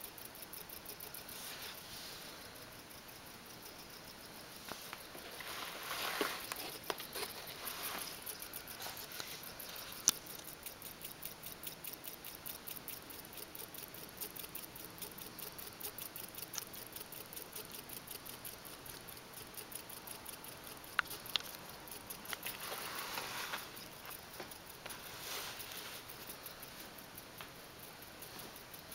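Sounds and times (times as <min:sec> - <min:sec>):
rustling handling: 0:04.6 - 0:10.6
small motor spinning a propeller: 0:05.4 - 0:26.7
sharp clicks: 0:06.4 - 0:28.9.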